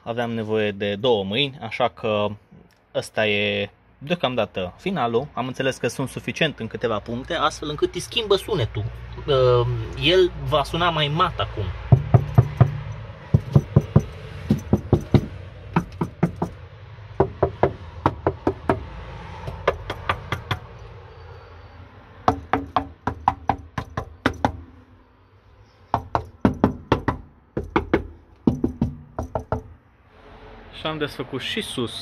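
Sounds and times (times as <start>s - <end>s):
knuckles knocking on sheet metal: 11.8s - 16.6s, 17.2s - 20.7s, 22.3s - 24.7s, 25.9s - 29.8s.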